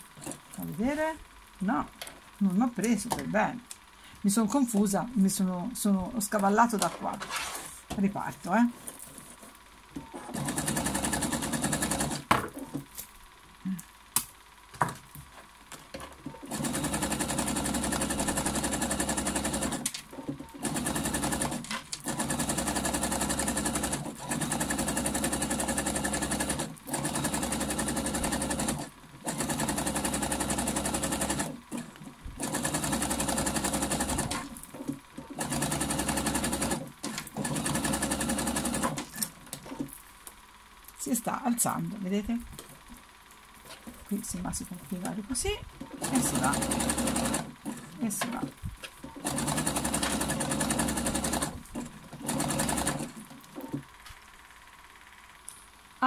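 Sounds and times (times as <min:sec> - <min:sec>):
sewing machine stitching: 0:10.0 - 0:12.8, 0:16.1 - 0:39.9, 0:45.8 - 0:54.0.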